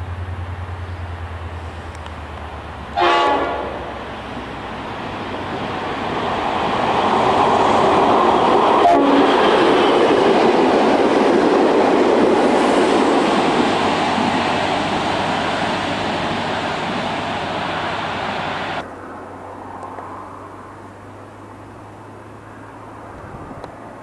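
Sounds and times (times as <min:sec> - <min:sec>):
train passing with wheel noise: 0:00.0 - 0:24.0
locomotive horn: 0:02.9 - 0:04.0, 0:08.8 - 0:10.0.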